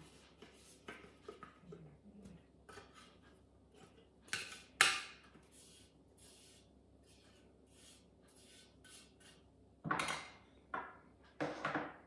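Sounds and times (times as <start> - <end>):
spatula scraping steel bowl: 0.0 - 9.5.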